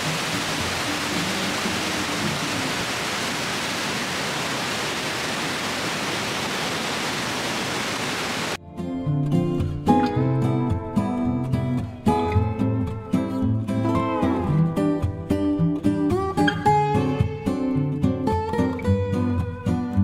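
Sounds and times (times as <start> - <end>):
steady rushing hiss: 0.0 - 8.6
strummed acoustic guitar music: 8.6 - 20.0.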